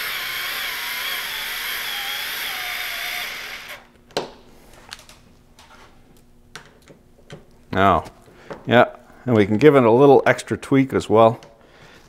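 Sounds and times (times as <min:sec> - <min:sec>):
power screwdriver whining: 0:00.0 - 0:03.9.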